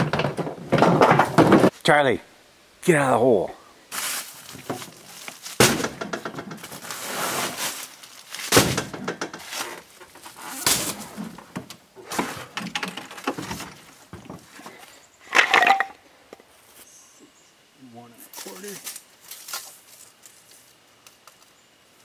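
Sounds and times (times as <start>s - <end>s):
plastic buckets knocking: 0.0s - 1.7s
scraping in truck bed: 5.6s - 14.5s.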